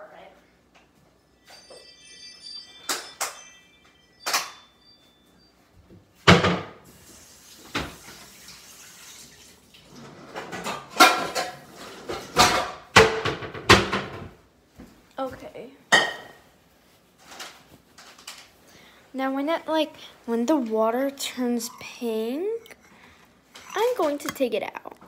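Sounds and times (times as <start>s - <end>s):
dishes and utensils clinking: 1.4s - 4.8s, 10.3s - 13.3s, 21.2s - 25.0s
water running: 6.8s - 12.3s, 19.3s - 25.0s.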